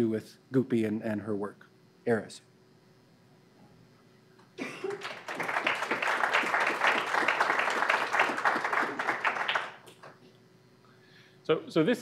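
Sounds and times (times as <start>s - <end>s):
audience applauding: 4.8s - 10.2s.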